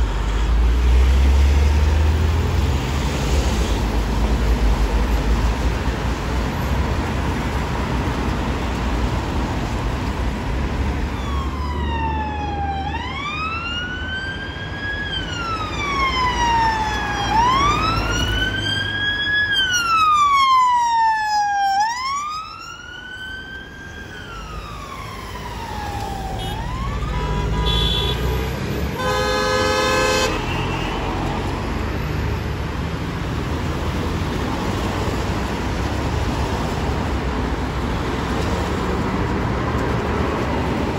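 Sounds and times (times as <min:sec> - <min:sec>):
traffic rumble: 0:00.0 - 0:40.9
police siren wailing: 0:11.0 - 0:28.0
siren bullhorn blast: 0:25.6 - 0:28.4, 0:29.0 - 0:31.3.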